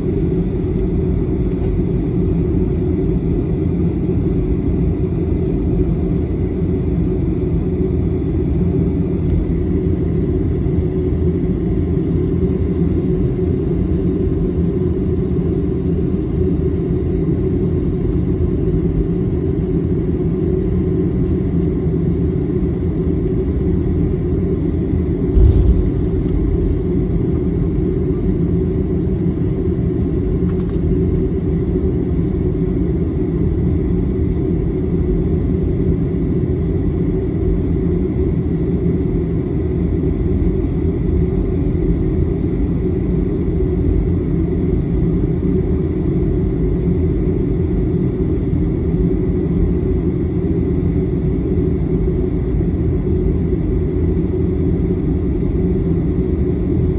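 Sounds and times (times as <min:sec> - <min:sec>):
jet engines rumbling: 0:00.0 - 0:56.9
thump: 0:25.4 - 0:26.6.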